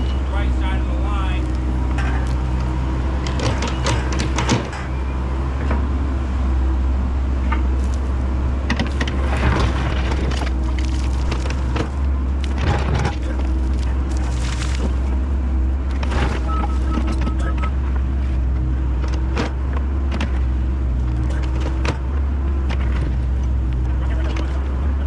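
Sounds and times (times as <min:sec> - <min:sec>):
excavator diesel engine: 0:00.0 - 0:25.0
bucket clanking and scraping: 0:08.7 - 0:15.2.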